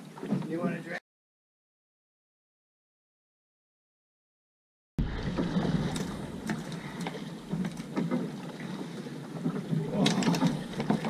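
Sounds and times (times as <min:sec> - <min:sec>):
water noise: 0:00.0 - 0:01.0, 0:05.0 - 0:11.0
wind: 0:00.0 - 0:01.0, 0:05.0 - 0:11.0.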